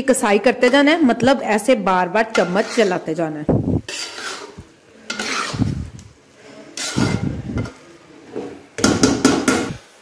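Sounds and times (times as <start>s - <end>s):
metal spatula scraping a pan: 0.5s - 1.2s, 2.2s - 3.2s, 3.8s - 8.7s.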